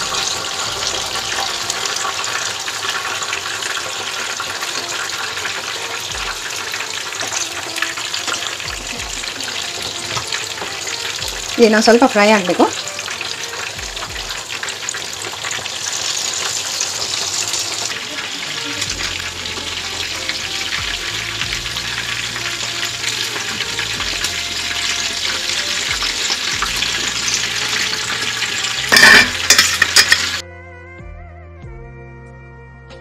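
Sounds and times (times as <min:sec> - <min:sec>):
fish sizzling in hot oil: 0:00.0 - 0:30.4
spatula turning fish in pan: 0:13.0 - 0:30.4.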